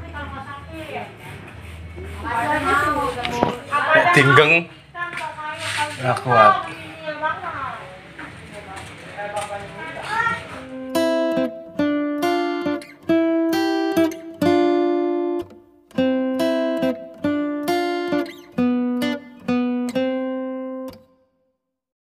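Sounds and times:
acoustic guitar strumming chords: 10.0s - 21.2s.

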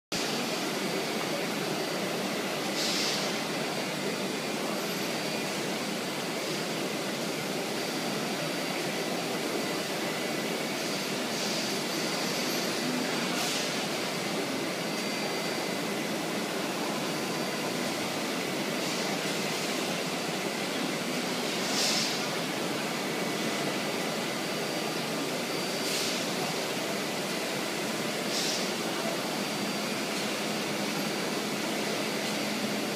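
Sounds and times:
machining centre running: 0.1s - 32.9s
faint high whine: 0.2s - 32.9s
short hisses: 21.6s - 22.2s.

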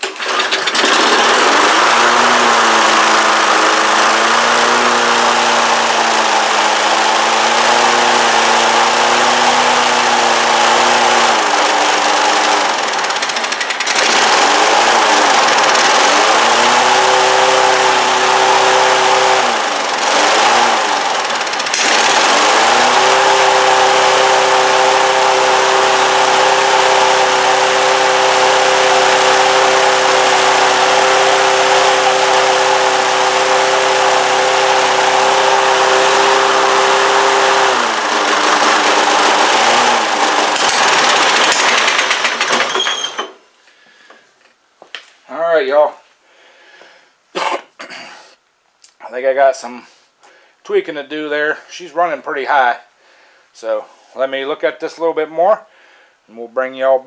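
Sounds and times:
lawn mower engine running: 0.0s - 43.4s.

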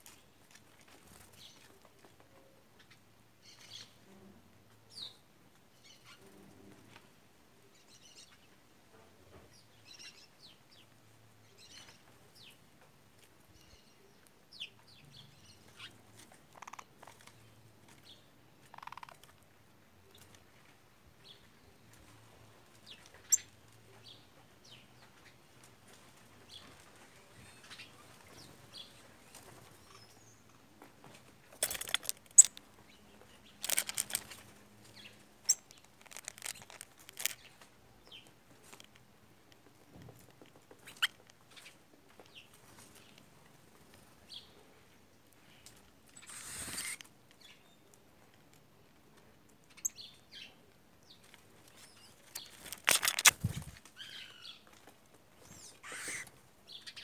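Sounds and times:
wing flapping and scuffling: 0.0s - 2.3s, 21.4s - 44.3s, 45.6s - 47.2s, 51.2s - 56.5s
faint bird chirps: 55.4s - 57.0s.

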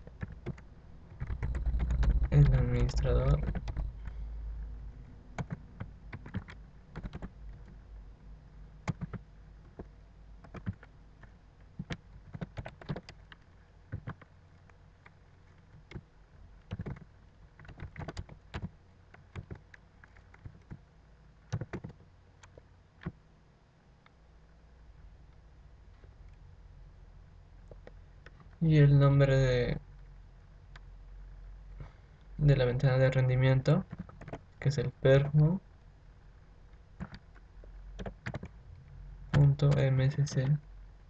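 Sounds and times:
typing on computer keyboard: 0.0s - 4.1s, 5.4s - 7.8s, 8.8s - 10.9s, 11.8s - 14.3s, 16.7s - 20.8s, 21.5s - 23.2s, 33.8s - 34.4s, 38.0s - 38.5s
faint low hum: 0.0s - 41.0s.

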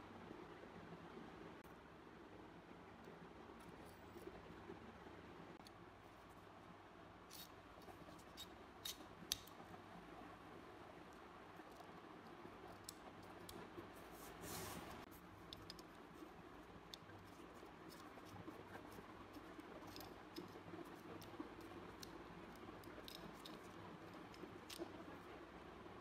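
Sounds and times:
small metallic clicks and scrapes: 7.2s - 9.7s, 15.4s - 25.3s.

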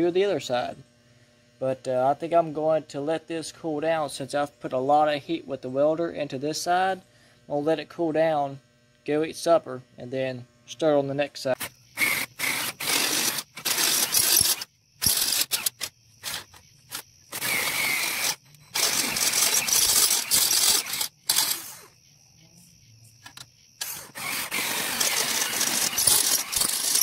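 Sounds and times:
drill grinding into metal: 11.5s - 22.0s, 23.8s - 27.0s.

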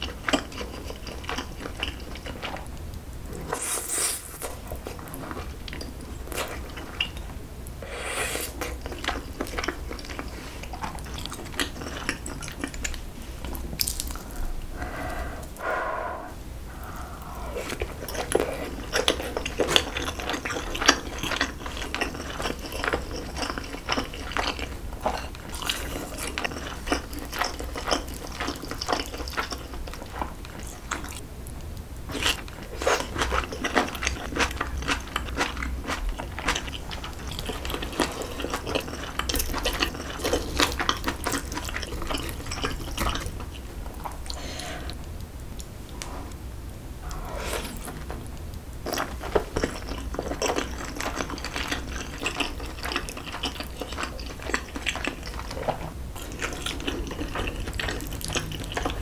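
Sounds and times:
wet chewing with mouth clicks: 0.0s - 7.3s, 8.5s - 46.4s, 47.0s - 59.0s.

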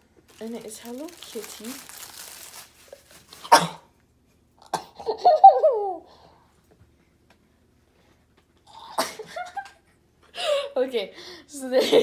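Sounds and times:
girl giggling: 5.0s - 6.1s, 11.7s - 12.0s.

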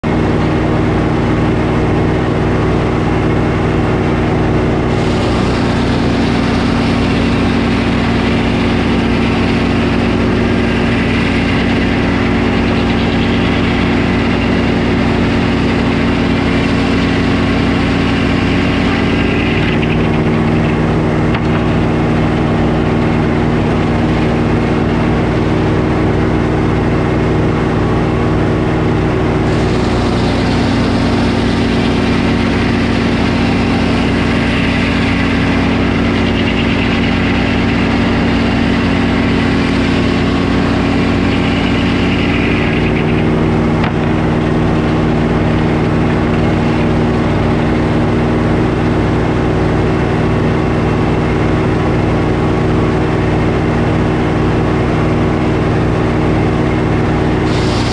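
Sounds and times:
sawmill running: 0.0s - 57.9s
saw blade cutting log: 4.4s - 26.0s, 29.4s - 48.3s, 57.3s - 57.9s.

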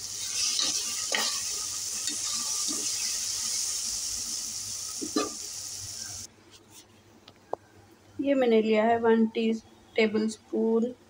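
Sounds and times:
onions sizzling in oil: 0.0s - 6.3s.

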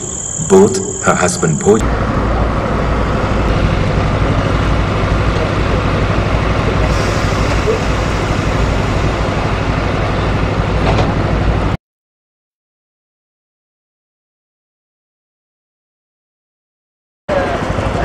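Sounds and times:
boat engine droning: 0.0s - 11.8s, 17.3s - 18.0s.

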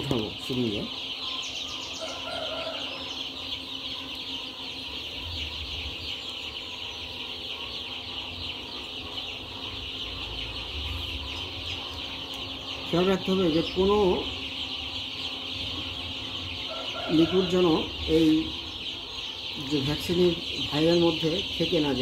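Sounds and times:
chicks peeping: 0.0s - 22.0s.

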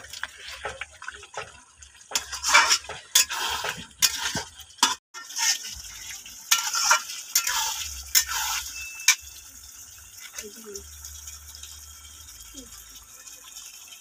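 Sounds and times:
food sizzling: 0.0s - 14.0s
spatula scraping metal pan: 2.1s - 9.4s.

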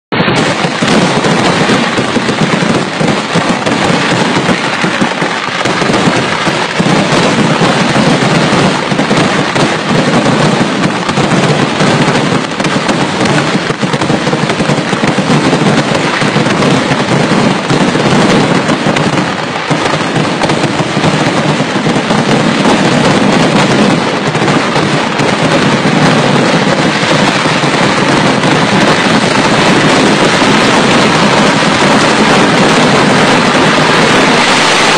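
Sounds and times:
firecracker blasts: 0.1s - 34.9s.

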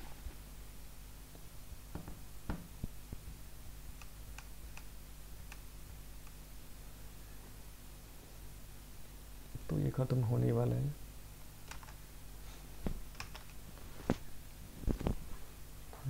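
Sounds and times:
low steady hum: 0.0s - 16.0s
faint clicks and ticks: 3.9s - 6.4s, 11.6s - 12.0s, 13.1s - 13.6s.

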